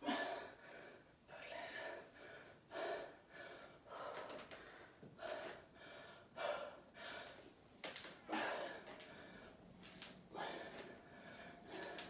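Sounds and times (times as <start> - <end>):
woman breathing hard: 0.0 - 7.6, 8.2 - 9.7, 10.3 - 12.0.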